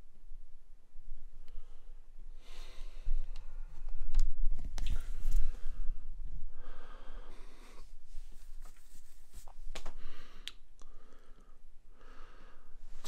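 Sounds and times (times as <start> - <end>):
man breathing: 1.5 - 3.9, 5.0 - 8.6, 9.8 - 13.0.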